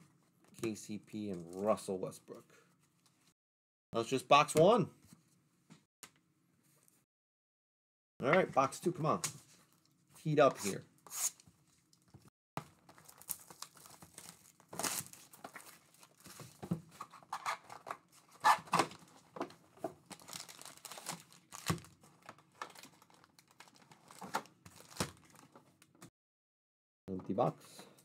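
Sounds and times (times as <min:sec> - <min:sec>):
cellophane tearing and crinkling: 0:12.8 - 0:16.5, 0:20.0 - 0:25.6.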